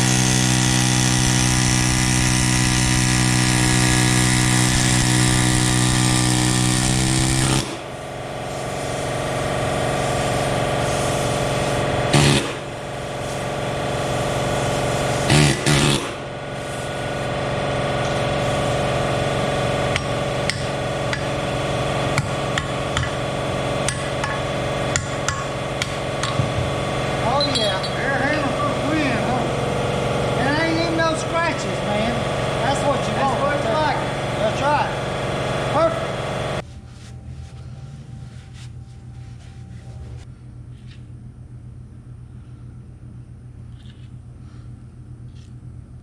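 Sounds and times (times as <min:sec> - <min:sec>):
air ratchet running: 0:00.0 - 0:17.4, 0:19.6 - 0:31.7
tools and metal parts clinking: 0:27.4 - 0:28.1.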